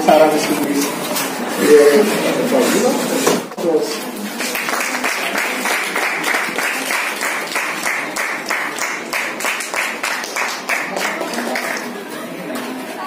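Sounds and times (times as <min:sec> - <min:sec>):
group clapping in rhythm: 0:04.3 - 0:12.0.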